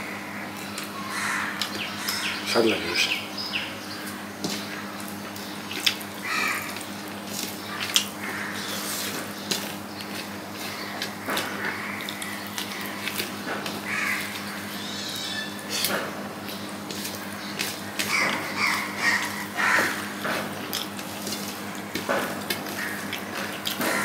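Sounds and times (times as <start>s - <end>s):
crow cawing: 0.0s - 3.2s, 6.2s - 6.8s, 7.7s - 8.7s, 10.7s - 13.0s, 13.8s - 15.8s, 18.0s - 20.2s, 22.7s - 24.0s
close-up chewing and lip smacks: 5.0s - 6.1s.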